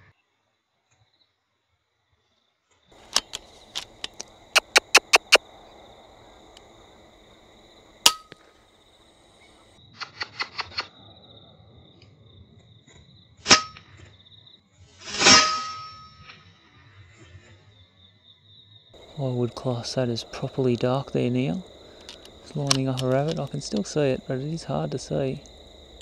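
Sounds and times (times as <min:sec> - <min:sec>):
runs of sharp clicks: 0:03.0 - 0:05.4, 0:21.8 - 0:24.0.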